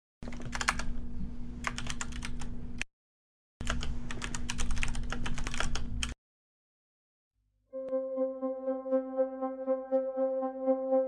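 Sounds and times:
rapid keyboard typing: 0:00.2 - 0:01.0, 0:01.6 - 0:02.6, 0:03.6 - 0:06.2.

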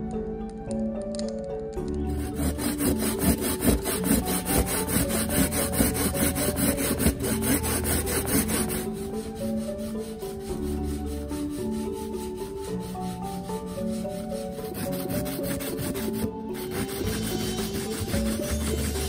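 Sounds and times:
coconut grating on metal grater: 0:02.1 - 0:19.0.

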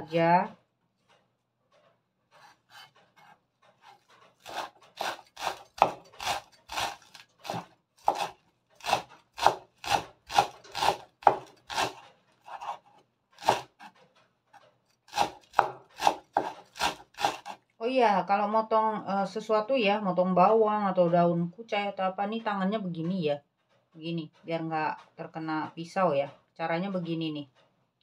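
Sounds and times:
knife chopping on wooden board: 0:02.4 - 0:13.9, 0:15.1 - 0:17.6.

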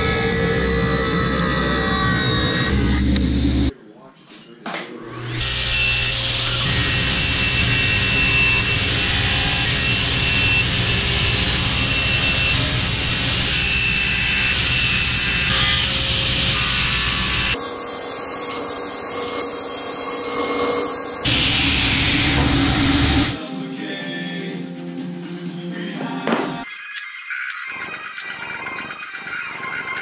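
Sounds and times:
table saw cutting wood: 0:05.1 - 0:23.4, 0:26.7 - 0:30.0.

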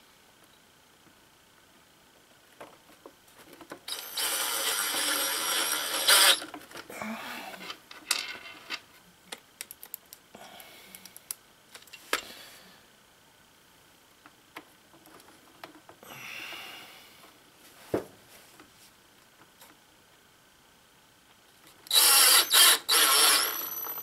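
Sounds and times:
cordless drill driving screw: 0:03.9 - 0:06.5, 0:21.9 - 0:24.0.

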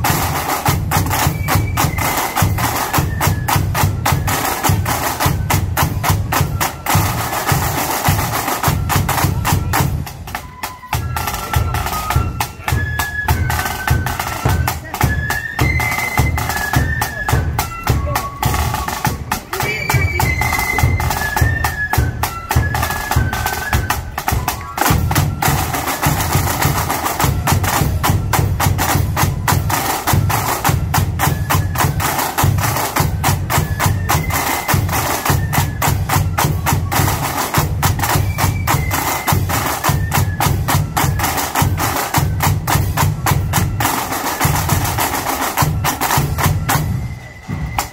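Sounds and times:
high flute melody: 0:00.0 - 0:47.9
snare drums rattling: 0:13.4 - 0:47.9.

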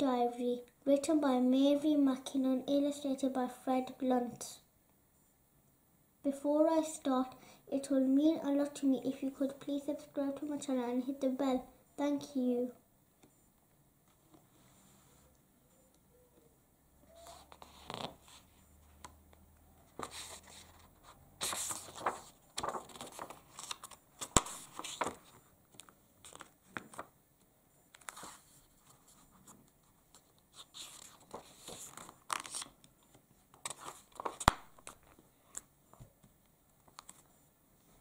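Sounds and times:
book pages turning: 0:17.1 - 0:27.1, 0:27.9 - 0:37.4.

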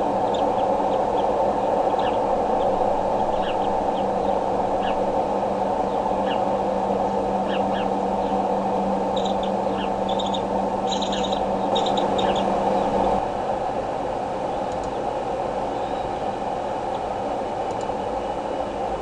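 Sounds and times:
eagle hatchlings peeping: 0:00.0 - 0:13.2
low hum: 0:00.0 - 0:19.0
steady rushing background: 0:00.0 - 0:19.0.

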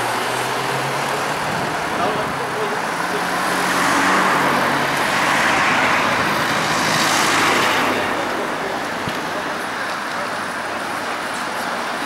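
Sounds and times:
vehicles driving past: 0:00.0 - 0:12.0.

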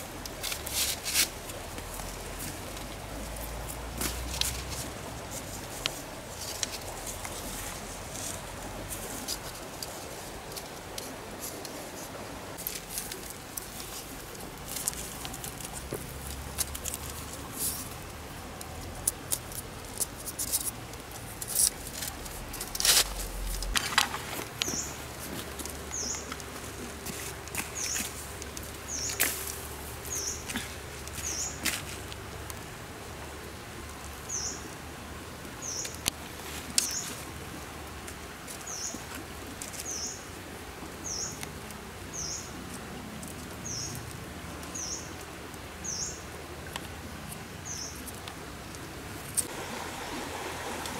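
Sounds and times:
bamboo creaking and snapping: 0:00.0 - 0:11.8, 0:12.6 - 0:32.7
stream water flowing: 0:00.0 - 0:50.9.

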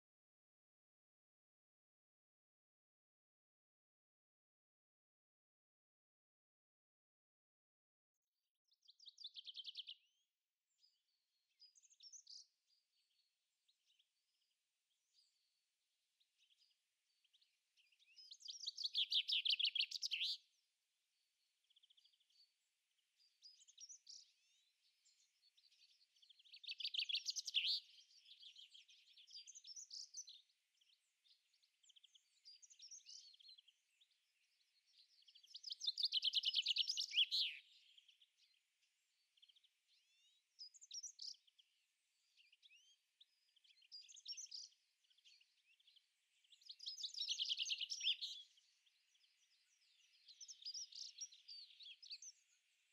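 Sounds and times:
quiet bird chirps: 0:08.2 - 0:52.9
songbird trilled song: 0:08.7 - 0:14.0, 0:16.4 - 0:20.6, 0:23.2 - 0:52.9.

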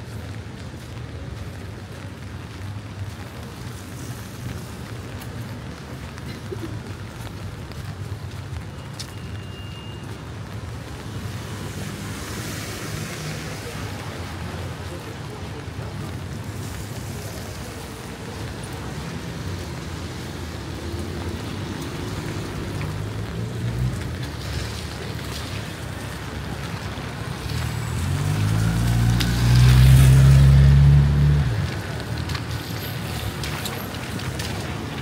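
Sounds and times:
city traffic: 0:00.0 - 0:35.0
car tyres hissing on wet road: 0:11.0 - 0:35.0.

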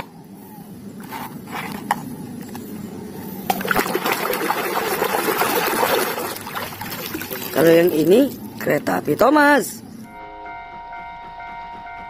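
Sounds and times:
water sloshing and splashing: 0:03.4 - 0:09.3.

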